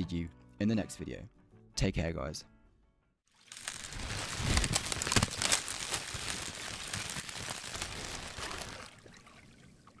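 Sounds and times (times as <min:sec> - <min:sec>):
dense crackling crinkling noise: 0:03.4 - 0:08.9.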